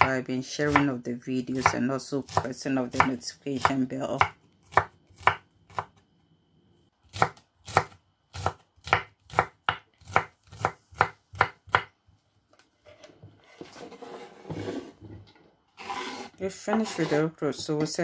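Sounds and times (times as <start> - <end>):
knife chopping on wooden board: 1.6 - 6.0, 7.1 - 11.9.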